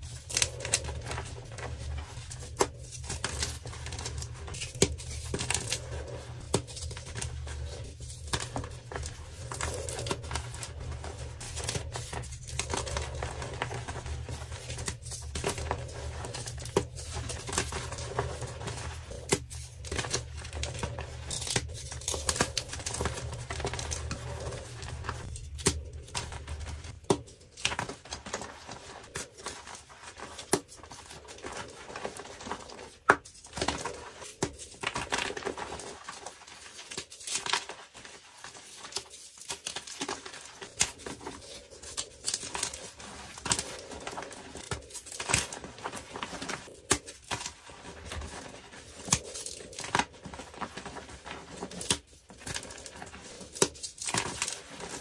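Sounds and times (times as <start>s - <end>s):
chalk blocks crunching and cracking: 0.0s - 55.0s
gritty powder rustling: 0.0s - 55.0s.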